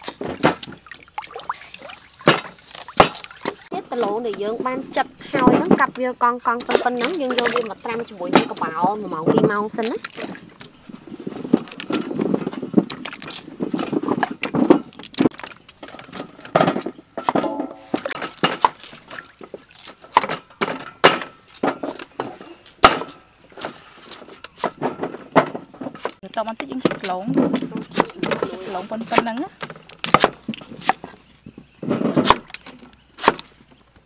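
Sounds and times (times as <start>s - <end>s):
splashes into basin of water: 0.0s - 3.7s.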